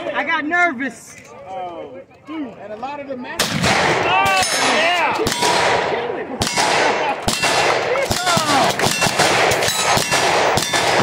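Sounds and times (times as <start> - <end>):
gunshots with ringing echoes: 3.4 - 11.0.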